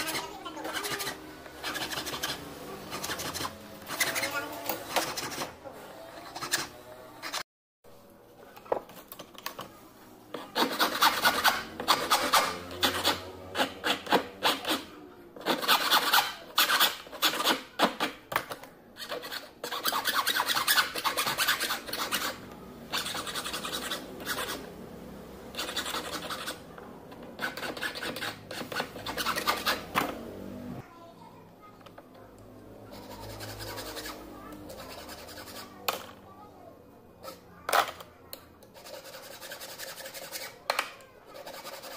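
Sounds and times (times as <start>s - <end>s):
metal file rasping on a ring: 0.0s - 5.5s, 10.4s - 17.5s, 19.0s - 24.7s, 25.5s - 26.7s, 27.4s - 29.9s, 32.9s - 35.8s, 38.8s - 40.6s, 41.3s - 41.9s.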